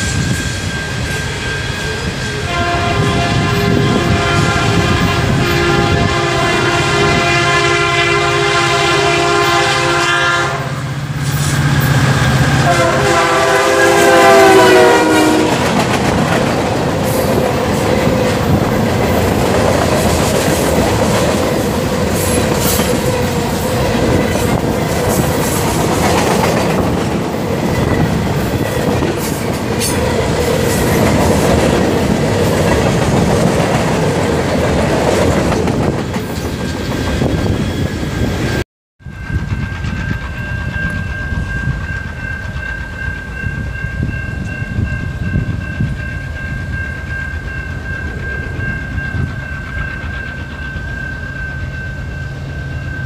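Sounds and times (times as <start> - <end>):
freight train rumbling past: 0.0 - 53.0
locomotive air horn blasts: 1.9 - 10.9, 12.4 - 15.7.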